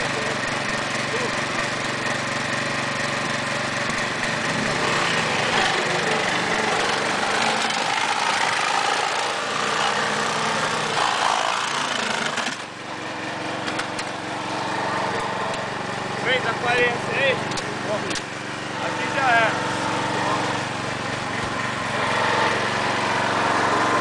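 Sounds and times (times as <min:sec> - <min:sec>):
small petrol engine running: 0:00.0 - 0:24.0.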